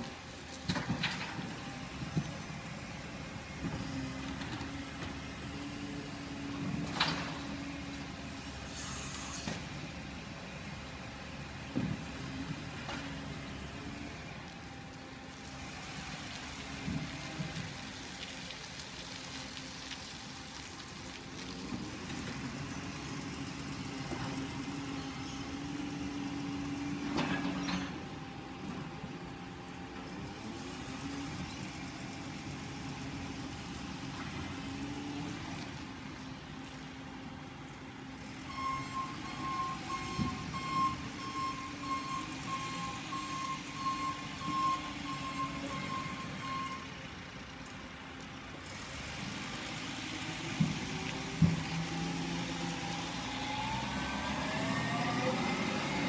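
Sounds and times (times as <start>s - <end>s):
garbage truck diesel engine: 0.0s - 19.5s, 20.2s - 56.0s
air brake hisses: 8.5s - 9.6s.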